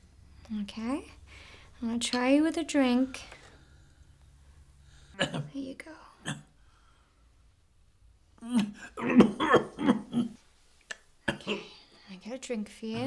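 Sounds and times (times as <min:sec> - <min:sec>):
old man coughing: 0:08.7 - 0:10.4.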